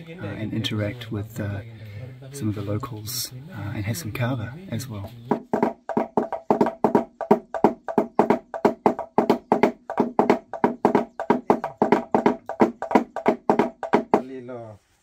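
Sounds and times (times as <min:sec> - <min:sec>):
hollow logs struck with sticks: 0:05.0 - 0:14.3.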